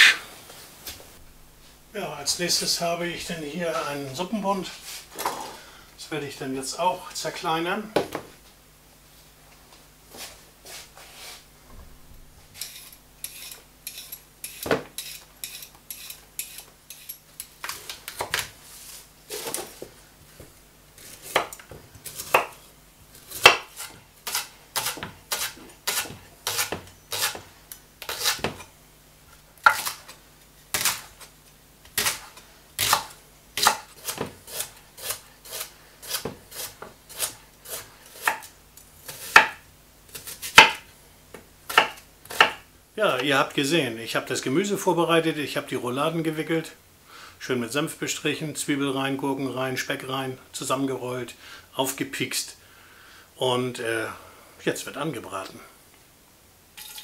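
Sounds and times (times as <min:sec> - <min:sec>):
knife chopping vegetables on board: 0:21.3 - 0:22.6, 0:23.3 - 0:27.5, 0:31.9 - 0:40.8, 0:41.7 - 0:42.6.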